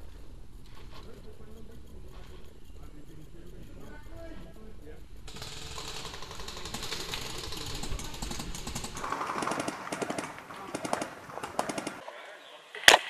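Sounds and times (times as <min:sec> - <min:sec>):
leaves and twigs crackling: 0:05.3 - 0:13.0.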